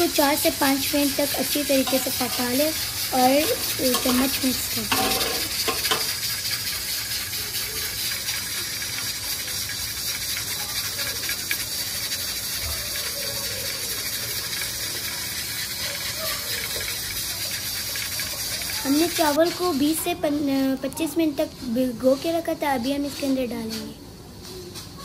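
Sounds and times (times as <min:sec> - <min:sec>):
stock pouring into pan: 0:00.0 - 0:19.9.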